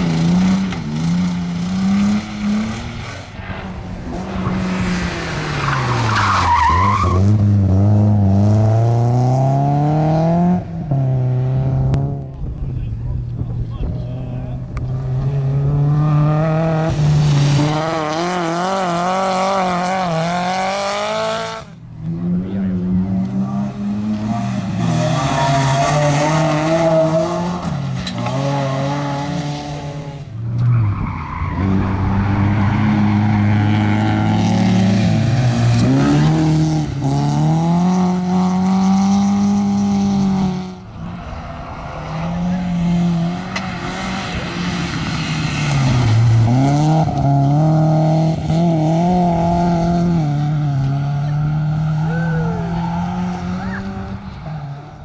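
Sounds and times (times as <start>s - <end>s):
tyres sliding on dirt: 0.0s - 7.5s
rally car engines revving: 0.0s - 55.0s.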